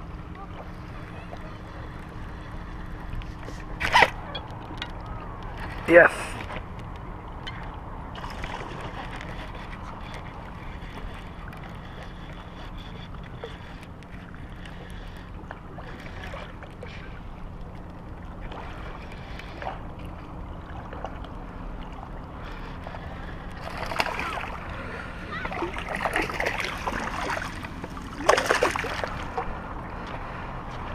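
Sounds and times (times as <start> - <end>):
water lapping on rocks: 7.8 - 30.9.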